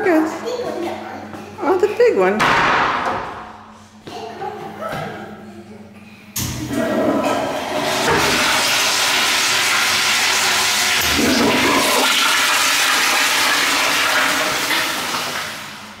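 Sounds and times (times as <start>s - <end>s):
toilet flushing: 6.4s - 16.0s.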